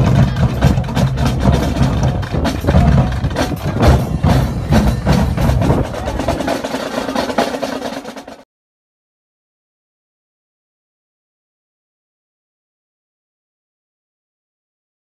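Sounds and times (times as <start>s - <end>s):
marching drumline: 0.0s - 8.4s.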